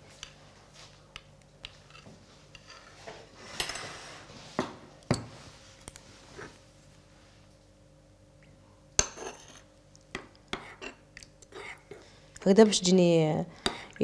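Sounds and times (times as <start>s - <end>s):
metal spoon stirring in saucepan: 9.0s - 9.7s, 10.5s - 12.9s.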